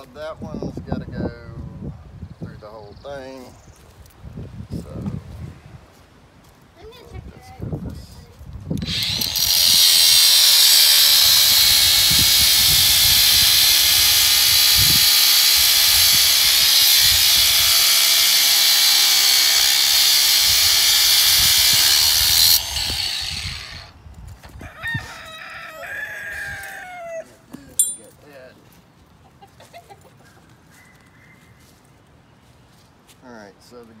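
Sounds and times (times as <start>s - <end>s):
angle grinder cutting steel: 8.8s - 23.9s.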